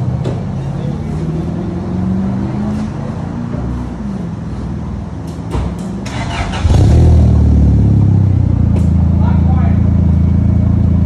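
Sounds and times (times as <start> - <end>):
car engine exhaust running: 6.6 - 11.0.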